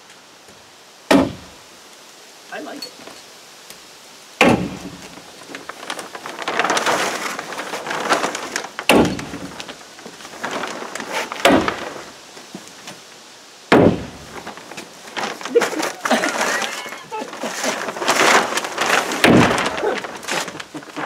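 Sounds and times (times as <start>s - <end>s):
plastic sheeting rustling: 4.4s - 21.0s.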